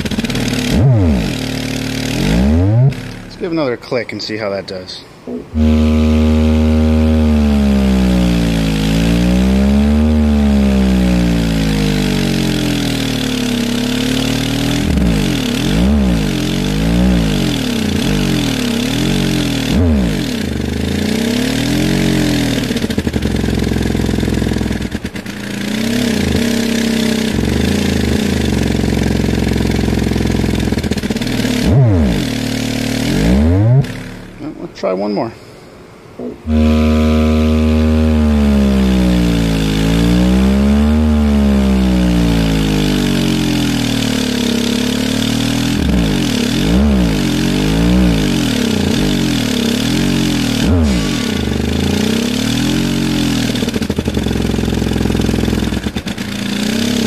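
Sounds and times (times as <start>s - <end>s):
subwoofer low bass tone: 0.0s - 4.4s, 5.0s - 55.9s
buzzing overtones: 0.0s - 44.6s.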